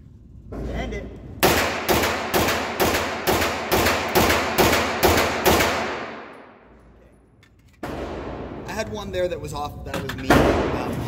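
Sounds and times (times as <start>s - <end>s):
gunshots echoing indoors: 1.4s - 6.8s, 7.8s - 8.8s.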